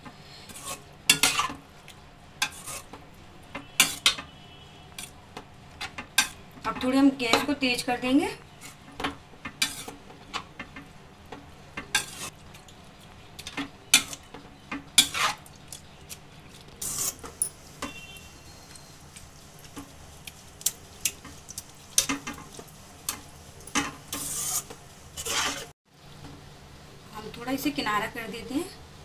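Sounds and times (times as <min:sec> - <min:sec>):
metal spatula scraping a pan: 0:00.3 - 0:01.6, 0:02.4 - 0:03.0, 0:03.6 - 0:05.1, 0:08.6 - 0:10.5, 0:11.9 - 0:12.4, 0:14.9 - 0:15.5, 0:16.8 - 0:18.4, 0:22.0 - 0:25.7.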